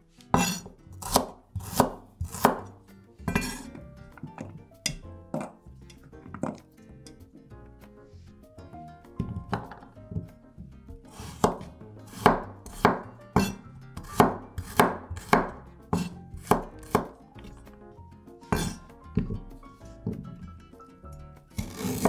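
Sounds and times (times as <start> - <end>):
knife chopping on wooden board: 0.3 - 5.6, 9.2 - 10.4, 11.1 - 17.6, 18.5 - 20.4, 21.6 - 22.0.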